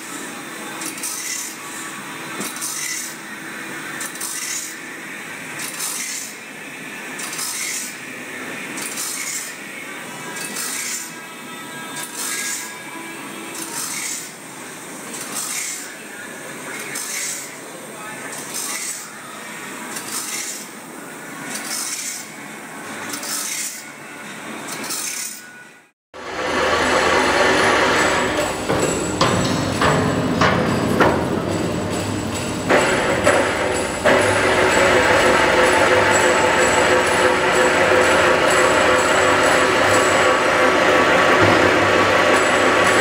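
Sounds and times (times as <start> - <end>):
grinding wheel hissing on blade: 0.1 - 5.0, 8.8 - 12.8, 26.2 - 29.2, 32.0 - 43.0.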